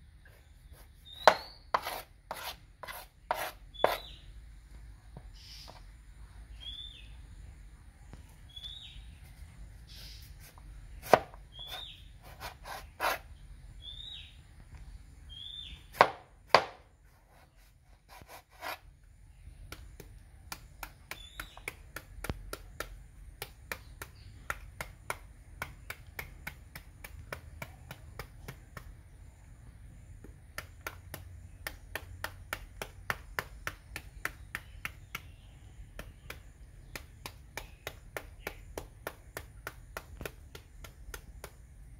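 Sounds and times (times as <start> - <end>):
bird chirping: 0.2 - 4.4, 5.2 - 22.9, 23.7 - 24.9, 33.1 - 41.5
knife cutting into fruit: 0.7 - 4.2, 10.2 - 13.3.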